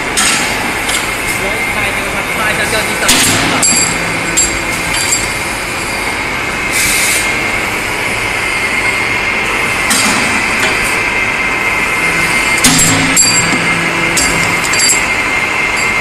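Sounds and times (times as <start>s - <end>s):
cutting machine high whine: 1.4s - 16.0s
metal bars clattering: 12.6s - 15.2s
chain feeder moving steel bars: 13.1s - 15.2s.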